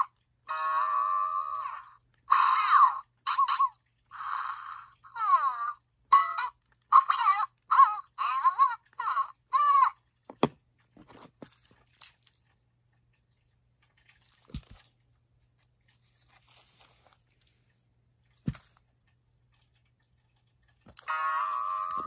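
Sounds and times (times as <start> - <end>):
toy handled on plastic playset: 10.3 - 12.4, 15.6 - 17.8, 18.4 - 18.8.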